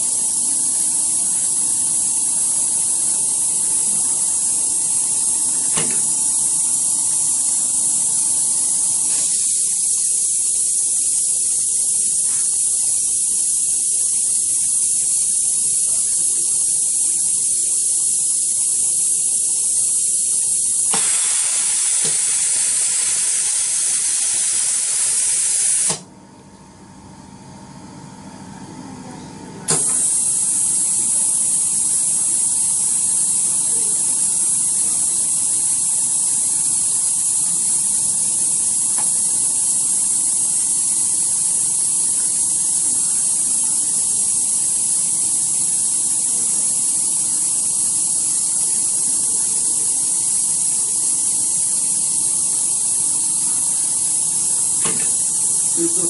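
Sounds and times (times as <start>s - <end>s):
compressed air hissing: 0.0s - 26.0s, 29.7s - 56.0s.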